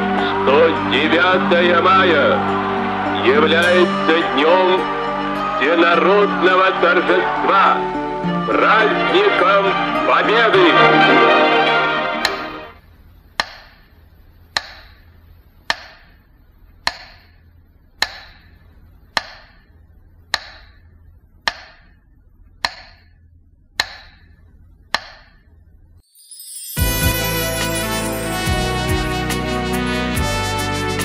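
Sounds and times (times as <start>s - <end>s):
loud music: 0.0s - 12.8s, 26.8s - 31.0s
faint low hum: 12.7s - 26.0s
sharp ticking with ringing tail: 13.2s - 25.6s.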